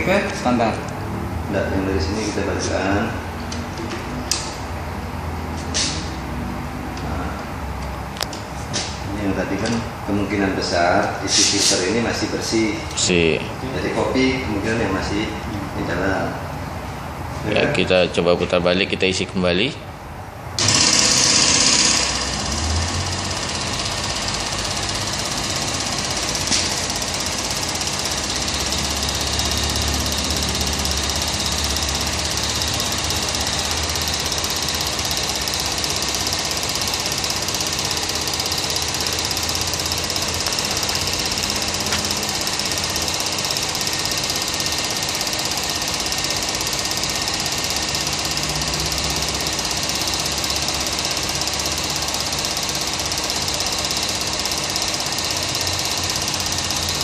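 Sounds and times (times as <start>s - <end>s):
small pump motor running: 20.6s - 57.0s.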